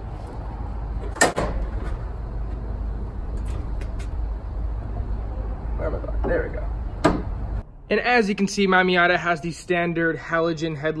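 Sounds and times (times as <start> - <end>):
steady low rumble: 0.0 - 10.4
metal car hood clunk: 1.0 - 1.9, 7.0 - 7.4.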